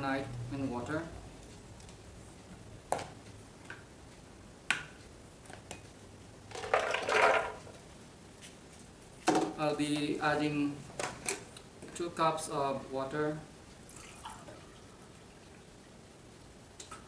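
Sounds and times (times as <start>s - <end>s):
nuts rattling into plastic jar: 6.5s - 7.6s.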